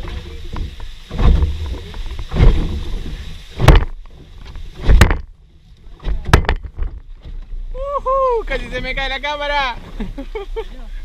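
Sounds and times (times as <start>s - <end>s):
low thumps with sharp knocks: 0.0s - 7.7s
rumbling microphone noise: 0.0s - 11.0s.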